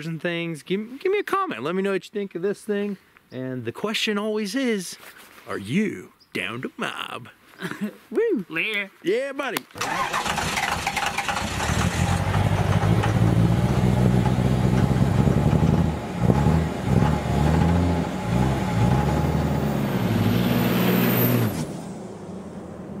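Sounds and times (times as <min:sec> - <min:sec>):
vehicle engine revving: 0:09.8 - 0:23.0.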